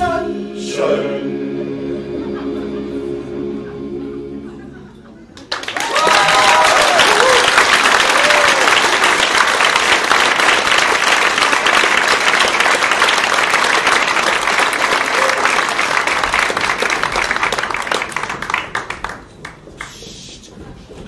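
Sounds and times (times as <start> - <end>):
audience applauding: 5.4 - 20.0.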